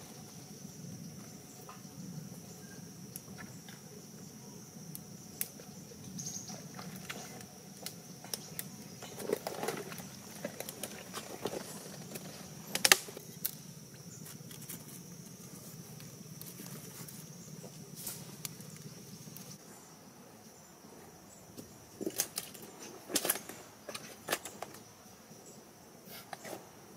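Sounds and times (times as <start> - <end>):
dry twigs cracking: 7.0 - 13.6.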